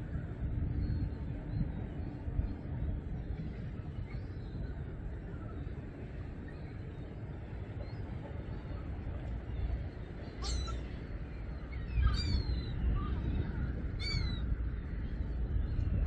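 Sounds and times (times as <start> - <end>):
water: 0.0 - 16.0
wind: 0.0 - 16.0
gulls calling: 9.6 - 15.1.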